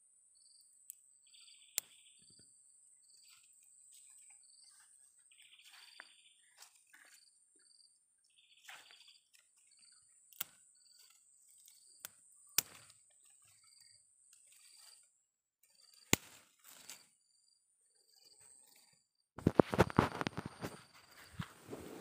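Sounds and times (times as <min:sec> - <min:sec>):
insect high-pitched trill: 0:00.3 - 0:19.0
buzzy insect calls: 0:00.4 - 0:07.2, 0:08.3 - 0:15.0.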